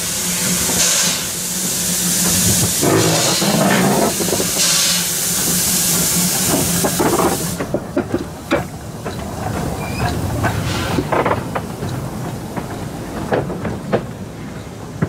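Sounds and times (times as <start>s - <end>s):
steam hissing from locomotive: 0.0s - 7.8s, 8.5s - 11.2s
locomotive knocks and clanks: 2.3s - 4.8s, 6.4s - 15.0s.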